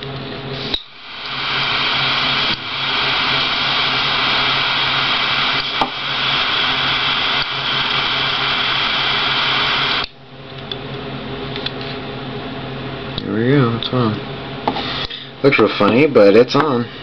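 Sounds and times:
jet-flame lighter hissing: 0.5s - 10.1s.

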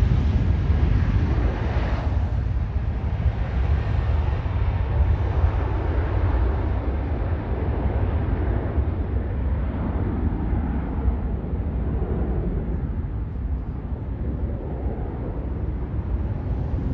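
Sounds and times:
jet engines roaring at takeoff: 0.0s - 16.9s.

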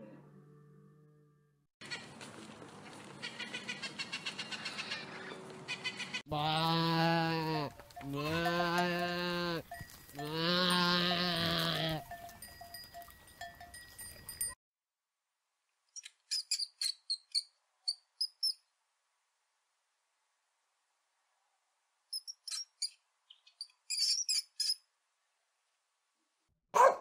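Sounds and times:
goat kid bleating: 5.8s - 12.1s
high-pitched mouse squeaks: 22.1s - 24.8s.

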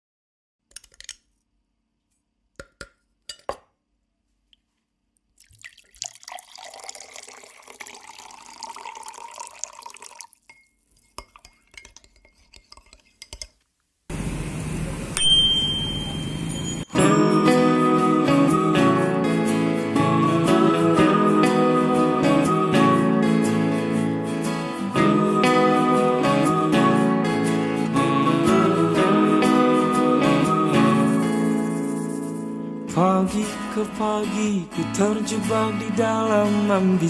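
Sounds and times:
water pouring into glass: 5.4s - 11.7s
glass clinks: 10.4s - 11.9s, 15.2s - 17.5s
bicycle bell ringing: 15.2s - 17.5s.

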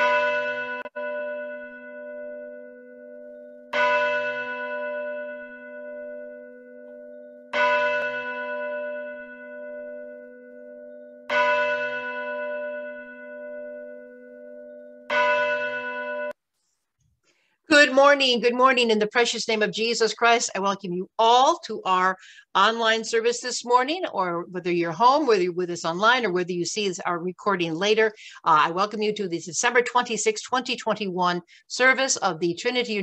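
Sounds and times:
church bell tolling: 0.0s - 16.4s.

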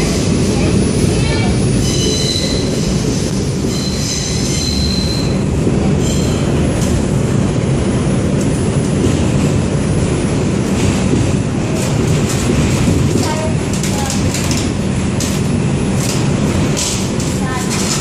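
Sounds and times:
subway train rumble in tunnel: 0.0s - 18.0s
train wheels squealing: 1.8s - 5.4s, 6.0s - 6.5s.

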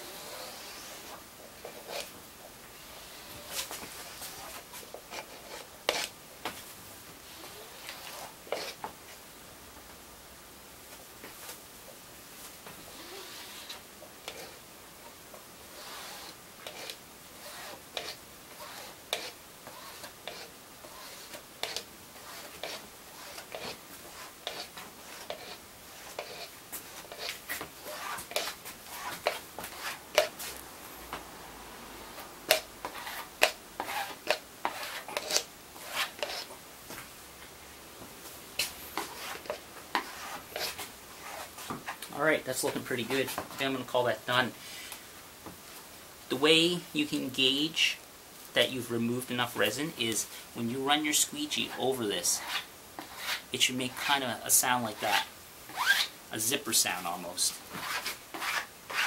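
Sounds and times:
squeegee scraping fiberglass cloth: 0.1s - 2.1s, 15.7s - 30.6s, 32.5s - 36.5s, 38.6s - 43.8s, 56.8s - 59.0s.

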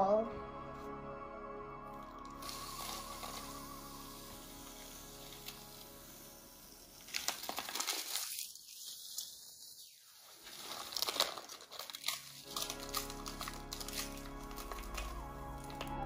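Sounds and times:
paper packet crinkling: 2.3s - 3.9s, 6.9s - 16.0s.

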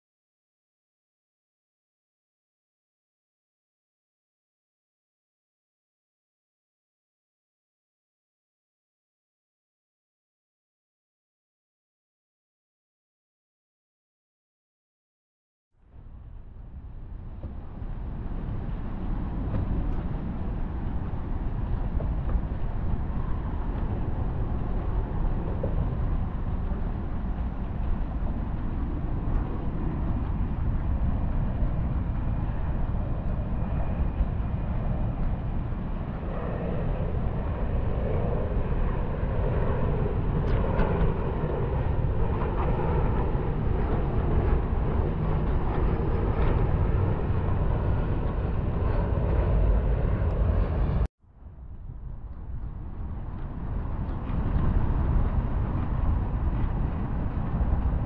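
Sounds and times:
wind rumble on microphone: 15.8s - 58.0s.

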